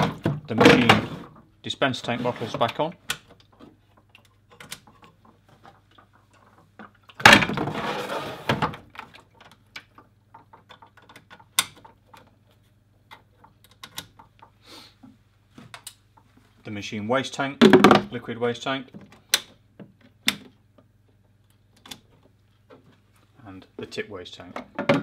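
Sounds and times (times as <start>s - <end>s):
plastic clicks and knocks: 8.6s - 12.4s, 24.5s - 25.0s.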